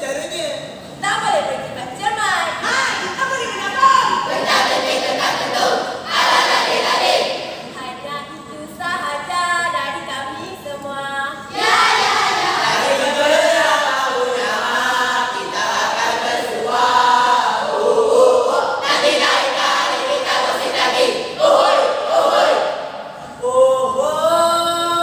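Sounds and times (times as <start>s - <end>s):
group chanting in unison: 2.6s - 7.8s, 11.5s - 25.0s.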